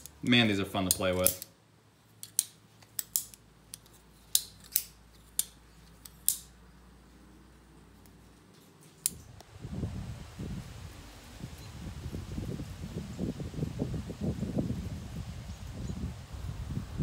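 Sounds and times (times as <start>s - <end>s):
butterfly knife metal clicks: 0.9s - 1.5s, 2.2s - 6.5s.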